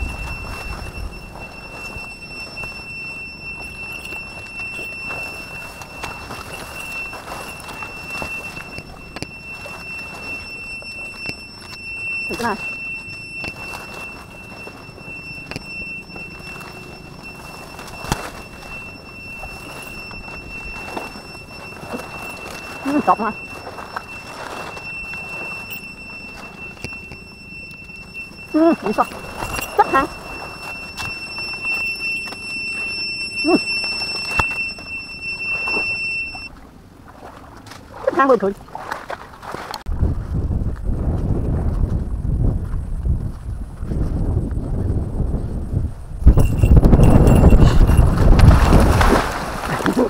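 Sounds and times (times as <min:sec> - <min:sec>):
leaves rustling against camera: 0:00.0 - 0:35.9, 0:46.4 - 0:50.0
high-pitched whine: 0:00.0 - 0:36.5
rising-and-falling call: 0:00.0 - 0:36.5
thin high tone: 0:00.0 - 0:36.5, 0:46.2 - 0:50.0.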